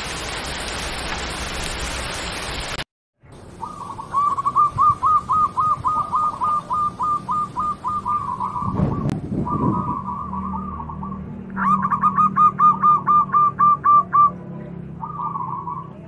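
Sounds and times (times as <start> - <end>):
rain-like hiss: 0.0 - 2.8, 3.4 - 8.7
bird chirping: 3.5 - 14.4, 15.0 - 16.0.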